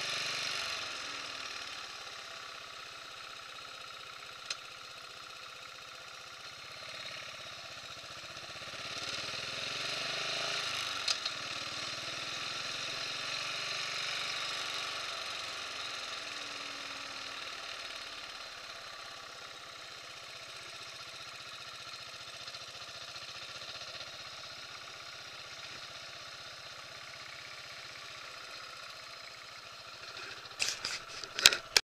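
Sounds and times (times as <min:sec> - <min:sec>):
motorcycle engine running: 0:00.0 - 0:31.8.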